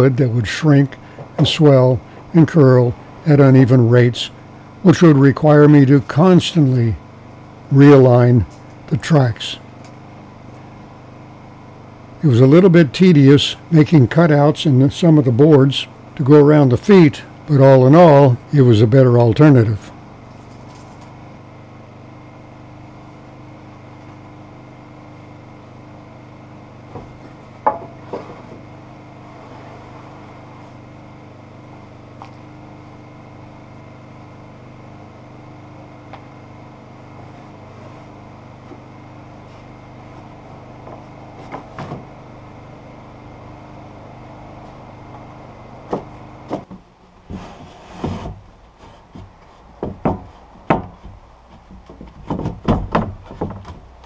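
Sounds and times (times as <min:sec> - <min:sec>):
steady mechanical hum: 0:00.0 - 0:54.0
sharp knocks and thumps: 0:26.9 - 0:28.7, 0:45.9 - 0:54.0
wooden floorboards knocking: 0:49.1 - 0:53.8.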